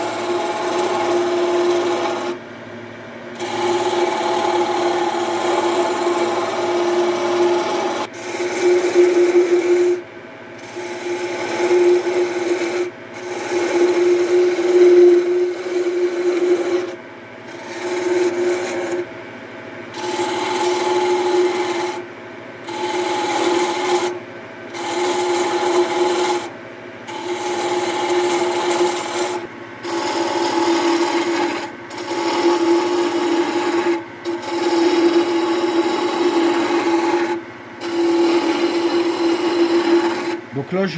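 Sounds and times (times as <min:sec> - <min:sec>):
gouge cutting wood on lathe: 0:00.0 - 0:02.4, 0:03.4 - 0:10.0, 0:10.6 - 0:19.1, 0:19.9 - 0:22.0, 0:22.7 - 0:26.5, 0:27.1 - 0:40.9
steady hum: 0:29.3 - 0:40.9.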